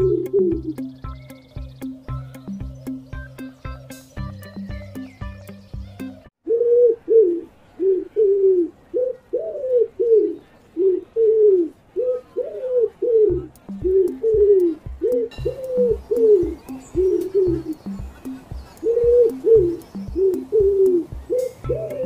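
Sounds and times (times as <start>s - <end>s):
low regular beat: 0.0s - 6.3s, 13.2s - 22.0s
pigeon cooing: 0.0s - 22.0s.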